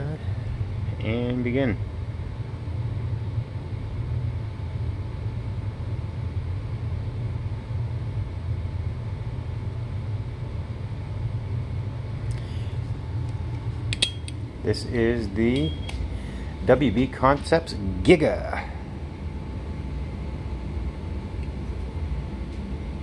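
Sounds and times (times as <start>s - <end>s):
low machinery hum: 0.0s - 23.0s.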